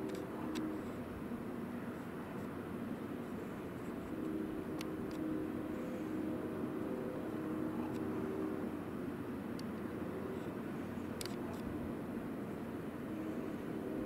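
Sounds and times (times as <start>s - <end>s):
distant engine drone: 0.0s - 14.0s
outdoor background noise: 0.0s - 14.0s.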